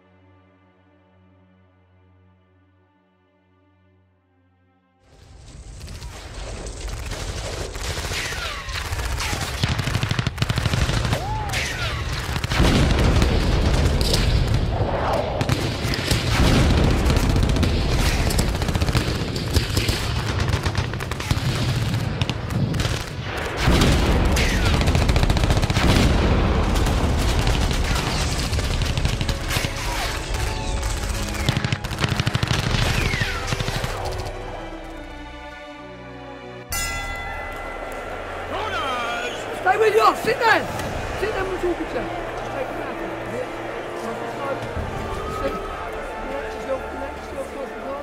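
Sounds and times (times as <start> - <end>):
rapid machine-gun fire: 5.8 - 14.7, 15.4 - 34.3.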